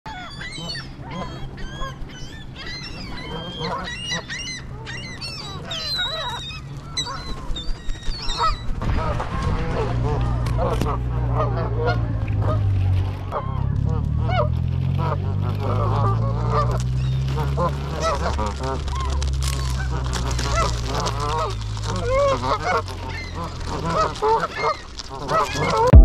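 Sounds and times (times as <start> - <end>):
geese honking: 0.1 - 25.9
low rumble: 6.4 - 26.0.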